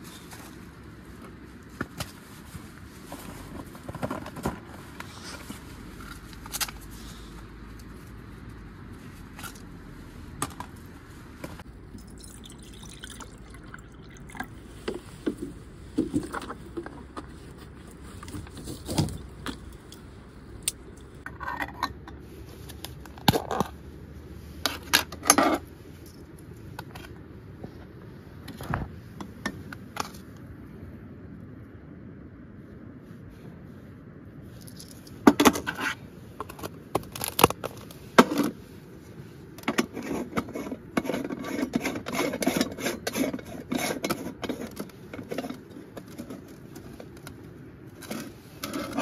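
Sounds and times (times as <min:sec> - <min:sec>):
water being poured: 0:11.9 - 0:14.7.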